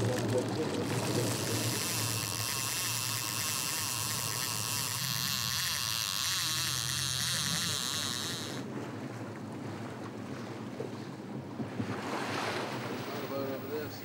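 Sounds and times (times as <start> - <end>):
boat engine hum: 0.0 - 14.0
high wavering whine: 0.8 - 8.7
wind and water hiss: 11.5 - 14.0.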